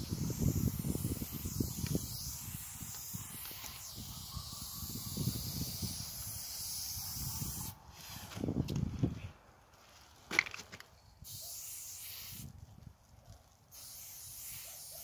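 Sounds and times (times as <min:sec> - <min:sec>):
spray paint can hissing: 0:00.0 - 0:08.4, 0:11.2 - 0:12.6, 0:13.7 - 0:15.0.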